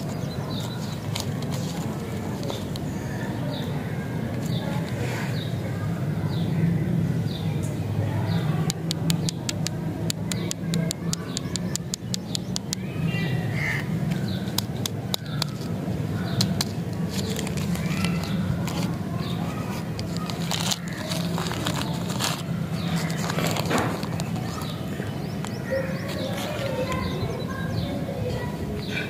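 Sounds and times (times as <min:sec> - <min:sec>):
sharp clicks: 0:08.7 - 0:12.8
plastic wrapper crinkling: 0:16.4 - 0:24.7.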